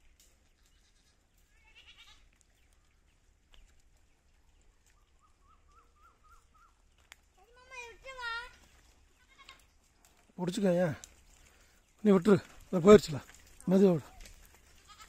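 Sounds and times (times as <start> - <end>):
goat bleating: 0.6 - 2.2, 7.9 - 9.7, 14.8 - 15.0.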